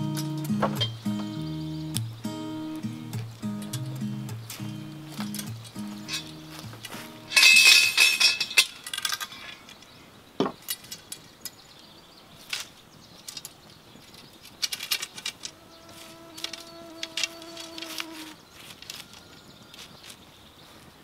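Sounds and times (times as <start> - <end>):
metal clinking and rattling: 5.2 - 9.9.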